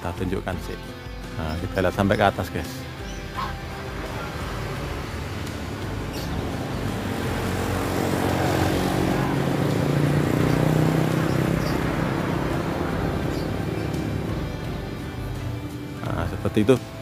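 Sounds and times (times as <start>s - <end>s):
passing vehicle engine hum: 2.9s - 16.1s.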